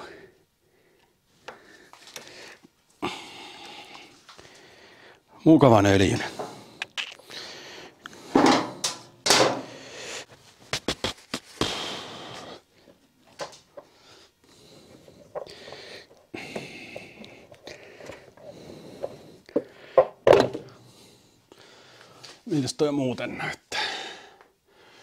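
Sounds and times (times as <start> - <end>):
tools knocking and clicking: 17.6 - 20.7.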